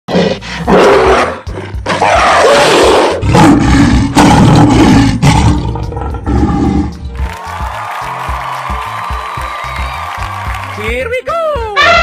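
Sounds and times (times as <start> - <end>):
loud rough animal roars: 0.1 - 7.0.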